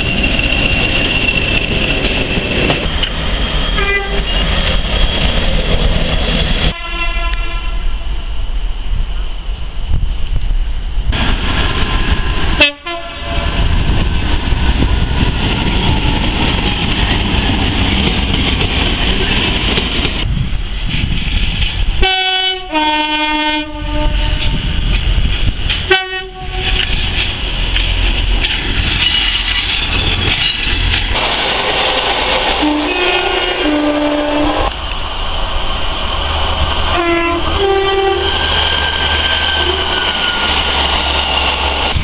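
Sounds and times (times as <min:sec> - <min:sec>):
diesel train rumbling on tracks: 0:00.0 - 0:42.0
two-tone train horn: 0:03.8 - 0:04.4, 0:06.7 - 0:08.0, 0:12.6 - 0:13.6, 0:22.0 - 0:24.6, 0:25.9 - 0:26.9, 0:31.9 - 0:34.7, 0:36.9 - 0:40.4.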